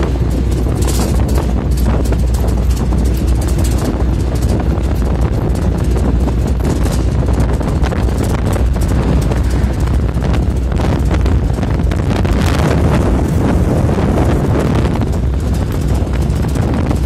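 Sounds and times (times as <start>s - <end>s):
truck road and engine rumble: 0.0s - 17.0s
wind buffeting microphone: 0.0s - 17.0s.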